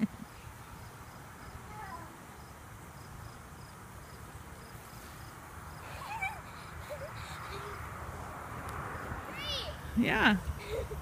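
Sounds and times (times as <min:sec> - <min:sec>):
insect chirping: 0:00.2 - 0:01.7, 0:02.3 - 0:09.2
child's voice: 0:01.6 - 0:02.2, 0:09.3 - 0:09.9.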